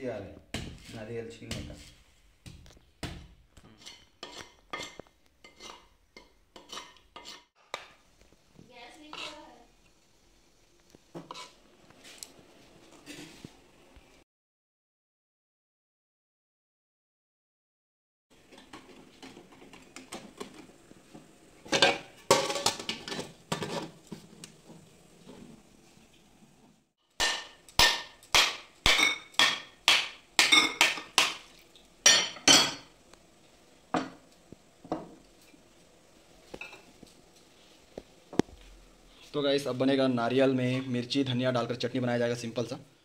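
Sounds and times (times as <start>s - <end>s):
metal pot clattering: 21.7s - 24.0s, 27.2s - 32.9s.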